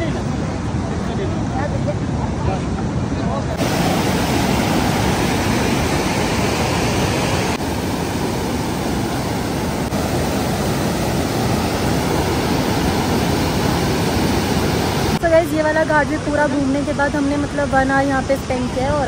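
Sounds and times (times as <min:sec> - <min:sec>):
stream rushing over rocks: 0:02.9 - 0:18.7.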